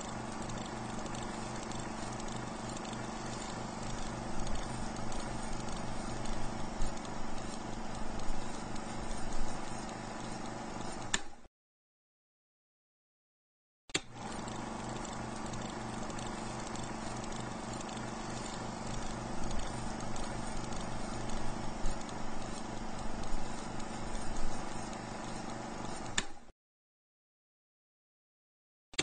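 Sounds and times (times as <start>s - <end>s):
film projector whir and clatter: 0.0s - 11.5s, 14.0s - 26.5s
projector switch click: 11.1s - 11.4s, 26.1s - 26.4s.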